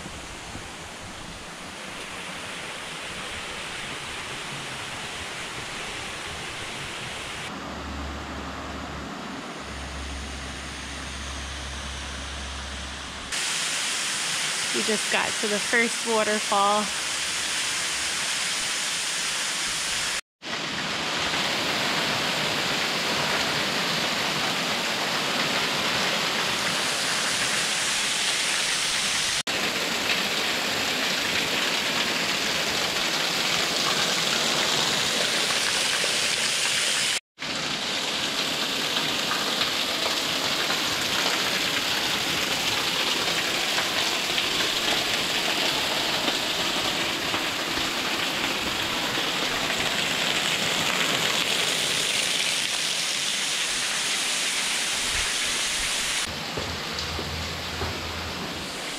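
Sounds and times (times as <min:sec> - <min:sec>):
waterfall rushing: 0:09.2 - 0:37.2, 0:37.8 - 0:58.9
water spray splashing: 0:13.3 - 0:20.1.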